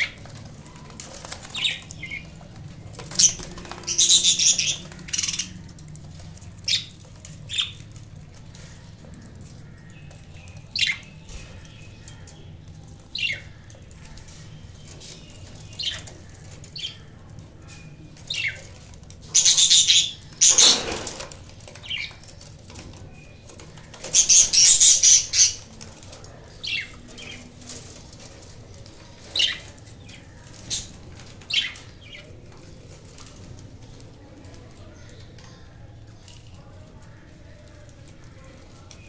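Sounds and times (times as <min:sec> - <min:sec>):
budgerigars chirping: 0:24.1 - 0:25.6.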